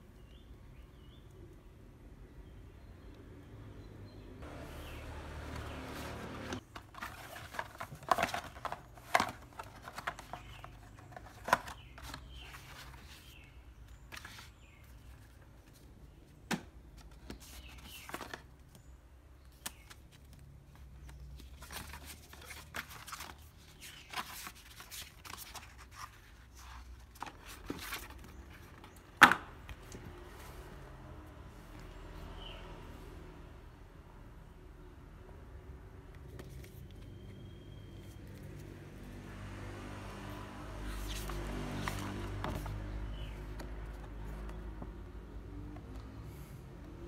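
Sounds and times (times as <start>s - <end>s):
cardboard box handling: 5.6s - 13.4s.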